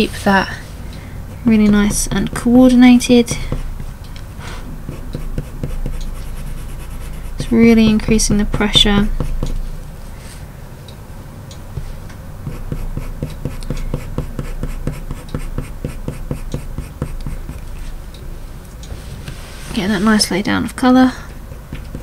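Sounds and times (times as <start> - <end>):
pencil scratching on paper: 4.9 - 8.1, 9.1 - 9.6, 11.8 - 17.6.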